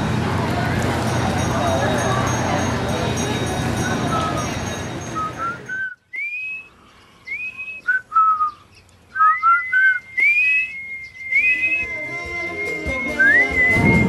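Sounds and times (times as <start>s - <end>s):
person whistling a tune: 4.1s - 6.7s, 7.3s - 8.6s, 9.2s - 14.0s
backing music with held tone: 10.1s - 14.0s.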